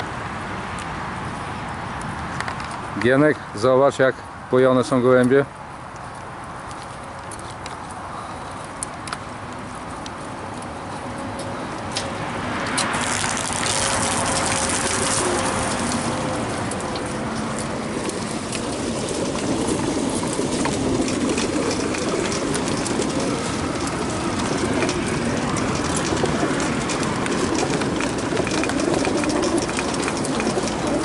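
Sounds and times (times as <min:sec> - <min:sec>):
small clicks and knocks: 0:11.3 - 0:31.0
water gushing from hose: 0:12.9 - 0:31.0.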